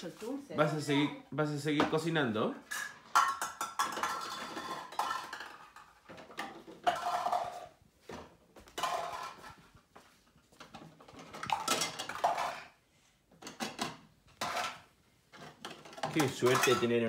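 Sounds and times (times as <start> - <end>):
toy dishes clattering: 2.6 - 7.8, 8.8 - 9.6, 10.7 - 12.8, 13.4 - 17.0.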